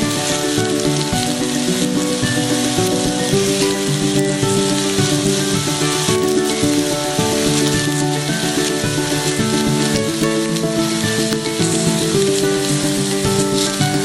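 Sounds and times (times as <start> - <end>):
meat sizzling in grill pan: 0.0 - 14.0
soft background music: 0.0 - 14.0.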